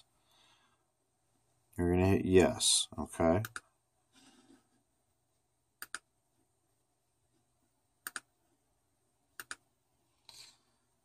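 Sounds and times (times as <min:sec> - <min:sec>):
computer mouse clicking: 0:05.8 - 0:06.1, 0:08.0 - 0:08.3, 0:09.4 - 0:09.6.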